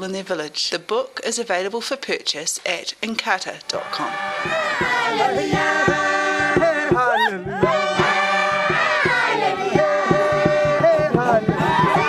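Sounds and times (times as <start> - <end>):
choir singing: 3.7 - 12.0
steady low beat: 3.9 - 12.0.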